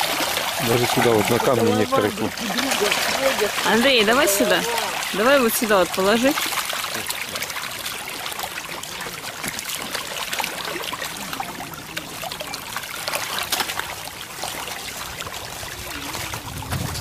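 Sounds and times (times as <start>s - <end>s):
fish splashing at water surface: 0.0s - 17.0s.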